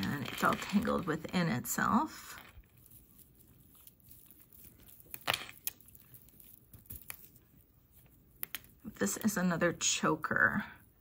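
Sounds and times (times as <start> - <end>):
necklace beads clicking: 2.2 - 9.4.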